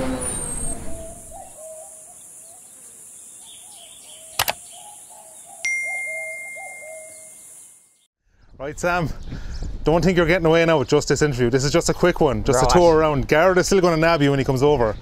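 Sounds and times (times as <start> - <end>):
sharp click: 4.4 - 4.6
bell-like ding: 5.7 - 7.4.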